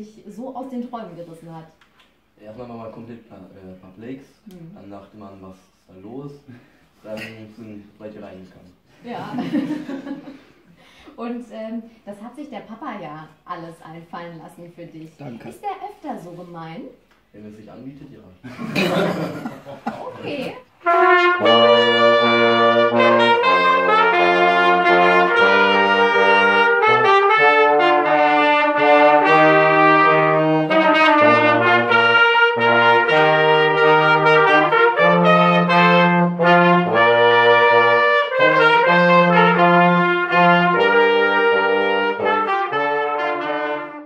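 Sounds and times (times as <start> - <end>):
brass band playing: 20.2 - 44.0
clarinet: 20.8 - 44.0
trombone bass line: 20.8 - 44.0.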